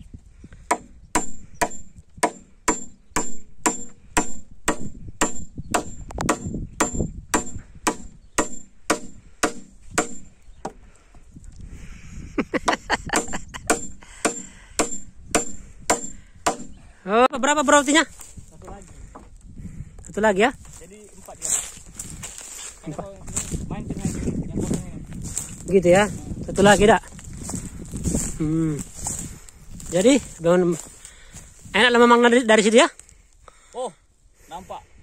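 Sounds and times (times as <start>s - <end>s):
hammer driving nails into wood: 0.7s - 10.8s, 13.2s - 16.8s.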